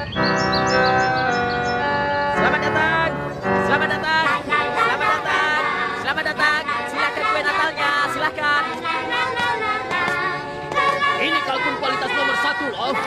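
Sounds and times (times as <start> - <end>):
voices singing together: 3.7 - 13.0.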